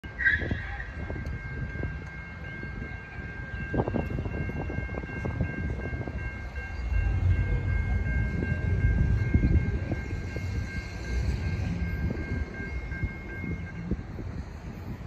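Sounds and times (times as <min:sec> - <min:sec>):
wind rumbling on microphone: 0:00.3 - 0:15.0.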